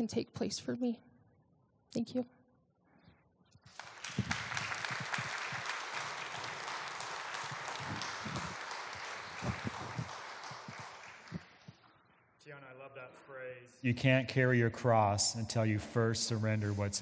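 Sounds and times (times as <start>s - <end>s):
crowd applauding: 3.7s - 12.0s.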